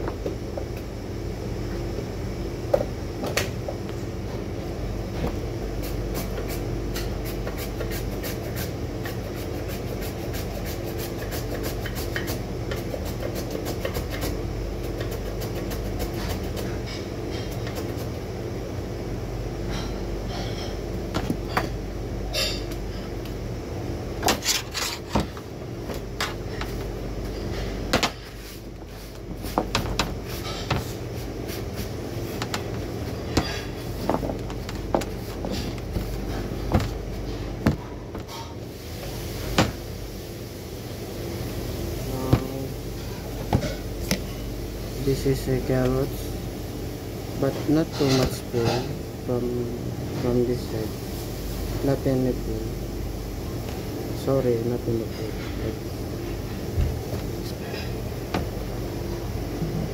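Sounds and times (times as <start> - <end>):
low machine hum: 0.0 - 59.9
knocks and clatter of vegetable prep: 33.3 - 38.5.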